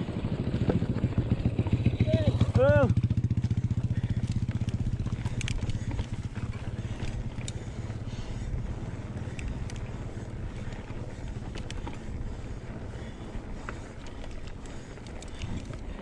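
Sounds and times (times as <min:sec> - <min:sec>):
bike clicking and rattling: 0:00.0 - 0:16.0
bike tyres rumbling on dirt: 0:00.0 - 0:16.0.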